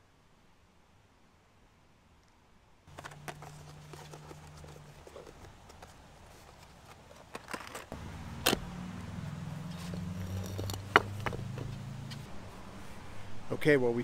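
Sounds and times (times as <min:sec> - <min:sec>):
engine humming: 0:02.9 - 0:13.5.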